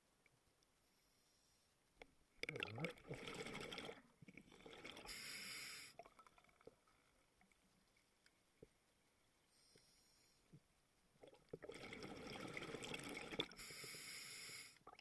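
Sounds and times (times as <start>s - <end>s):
exhaled bubbles gurgling: 2.4s - 5.3s, 11.2s - 13.6s
regulator inhalation hiss: 5.1s - 6.0s, 13.6s - 14.8s.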